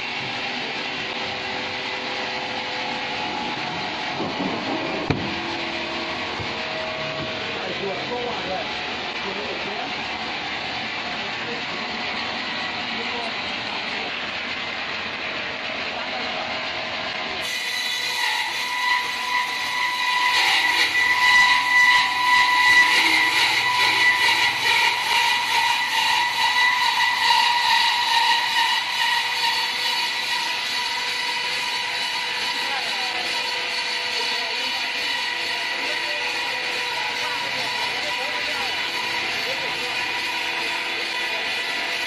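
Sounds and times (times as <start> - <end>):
band sawmill running: 0.0 - 42.0
plank knocking on boards: 4.2 - 5.3.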